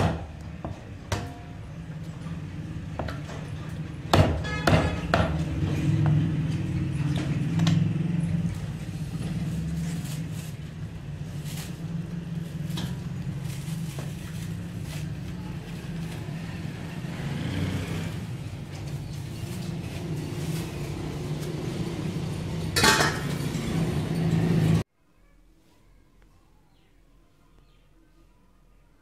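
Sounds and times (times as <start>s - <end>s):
cleaver chopping on wooden block: 4.1s - 5.4s
plastic bag crackling: 8.6s - 17.0s, 18.2s - 21.8s.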